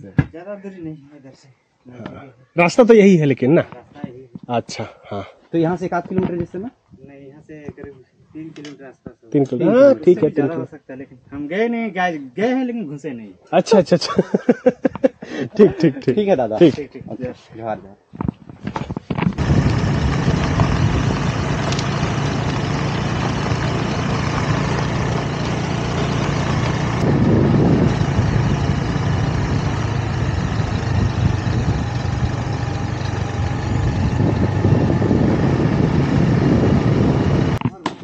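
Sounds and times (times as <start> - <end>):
wind rushing on microphone: 18.2 - 21.9, 27.0 - 32.4, 33.3 - 37.6
scooter engine hum: 19.4 - 37.6.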